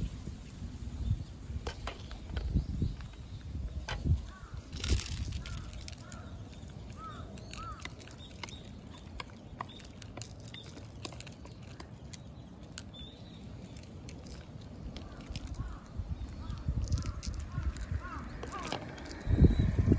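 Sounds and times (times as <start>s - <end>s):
cat crunching dry kibble: 4.6s - 19.3s.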